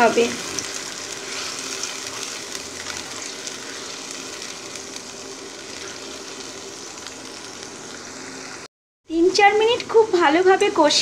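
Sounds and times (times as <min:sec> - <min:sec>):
paste sizzling in hot oil: 0:00.0 - 0:08.7
spatula stirring in pan: 0:00.5 - 0:08.0.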